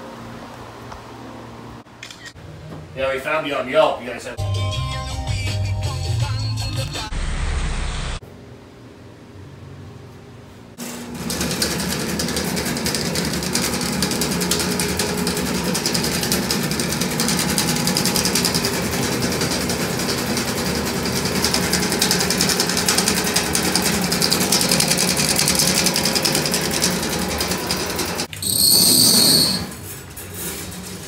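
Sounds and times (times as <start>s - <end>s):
drain-cleaning machine motor hum: 10.8s - 28.3s
spinning cable ticking and rattling: 11.1s - 28.3s.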